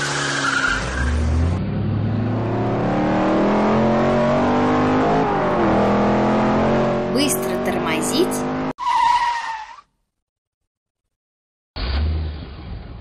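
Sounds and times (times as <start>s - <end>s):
race car engine accelerating: 0.6s - 8.7s.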